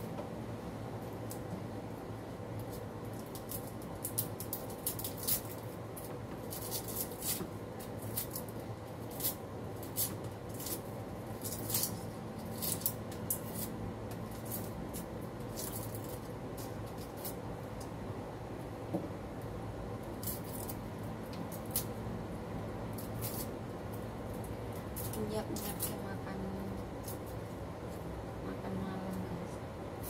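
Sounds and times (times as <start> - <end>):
steady low hum: 0.0 - 30.0
knife scraping and snipping cloves: 6.4 - 17.9, 20.1 - 22.0, 22.9 - 23.6.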